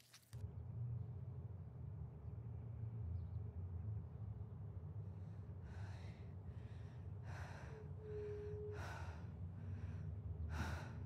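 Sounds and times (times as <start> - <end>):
steady low rumble: 0.6 - 11.0
person breathing hard: 5.6 - 11.0.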